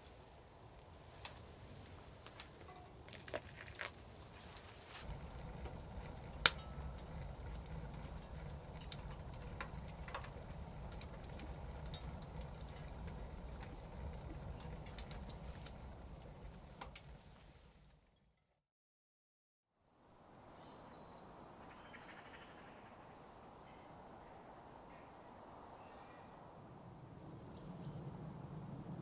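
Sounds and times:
fire crackling and popping: 0.0s - 18.4s
low rumble of burning fire: 0.0s - 18.5s, 26.4s - 29.0s.

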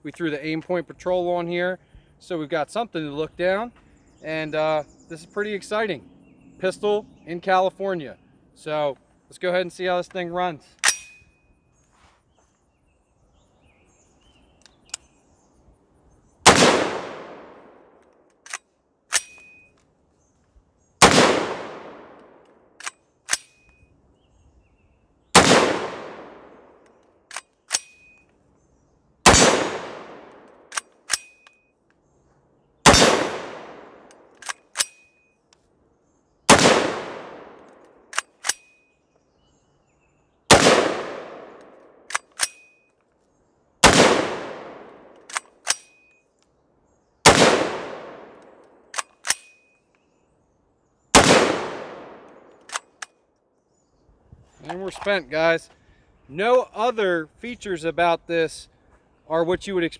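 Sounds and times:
gunshots: 16.4s - 19.3s, 21.0s - 22.4s, 25.4s - 26.8s, 29.2s - 31.3s, 32.8s - 34.9s, 36.5s - 37.7s, 40.5s - 42.5s, 43.8s - 45.8s, 47.2s - 48.4s, 51.2s - 52.8s.

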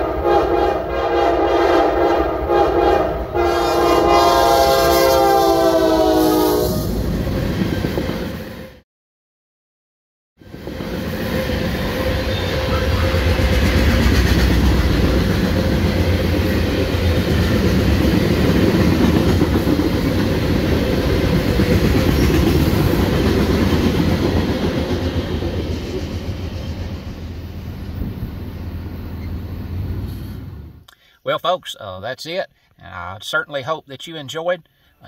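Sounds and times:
steel train wheels on rails: 10.4s - 30.8s.

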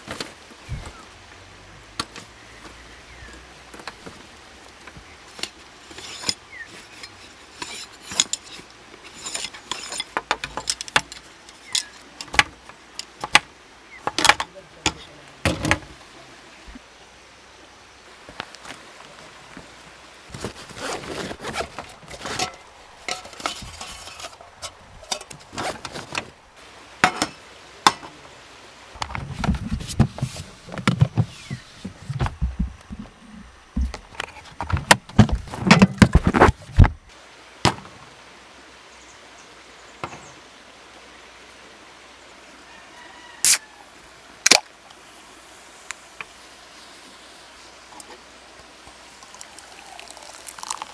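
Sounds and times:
knocks and rustling: 4.8s - 16.0s, 20.3s - 26.4s, 29.0s - 38.0s
heavy thuds: 29.1s - 38.0s.

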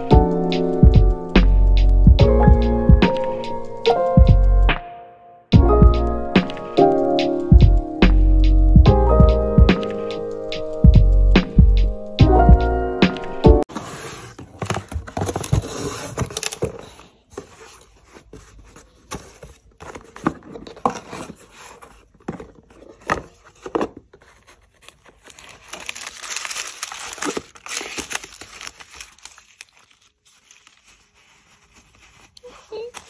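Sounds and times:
paper and cardboard rustling: 13.6s - 33.0s.

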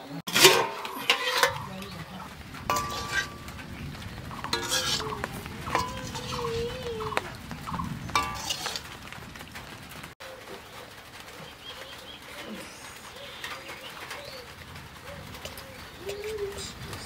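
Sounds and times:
ladle scraping metal wok: 0.3s - 3.6s, 4.4s - 6.6s, 8.2s - 8.8s
doves cooing: 0.8s - 17.0s.

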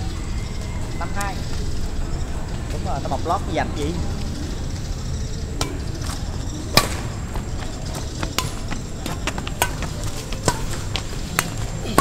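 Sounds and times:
rackets striking shuttlecock: 5.6s - 7.3s, 8.2s - 12.0s.

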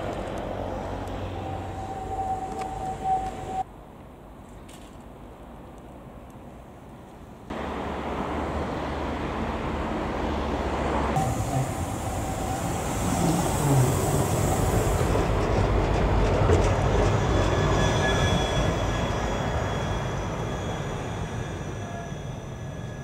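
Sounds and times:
tram running on rails: 0.0s - 23.0s
high wheel squeal: 0.7s - 3.7s, 11.2s - 15.6s, 16.3s - 23.0s.

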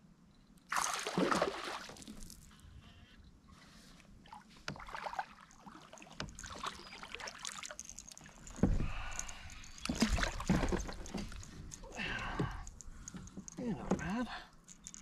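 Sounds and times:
fish splashing at water surface: 0.7s - 2.2s.

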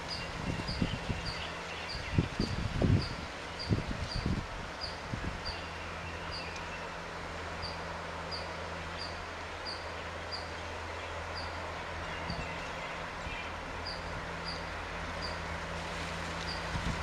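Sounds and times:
distant diesel locomotive drone: 0.0s - 17.0s.

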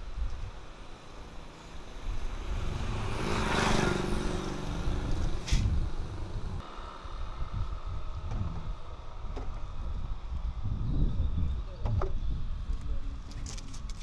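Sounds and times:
motor vehicle passing by: 1.3s - 8.2s.

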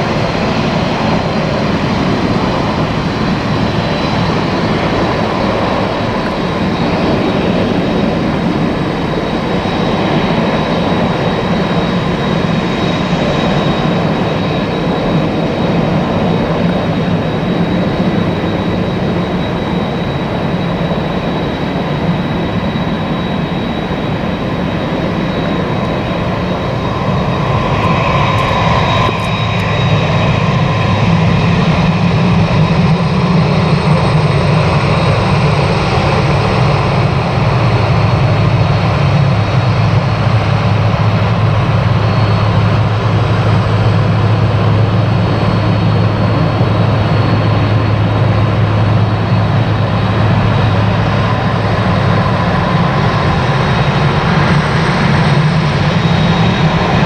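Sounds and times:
jet engines droning: 0.0s - 57.0s.

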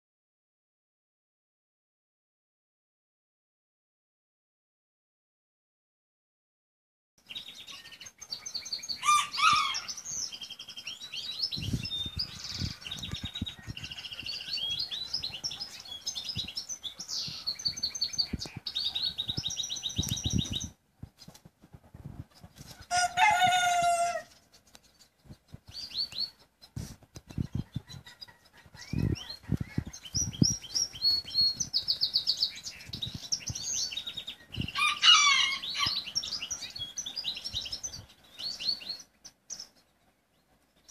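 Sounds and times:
small birds chirping: 7.2s - 40.9s
feathers rustling and flapping: 20.3s - 22.9s
rooster crowing: 22.9s - 24.3s, 34.8s - 36.1s.

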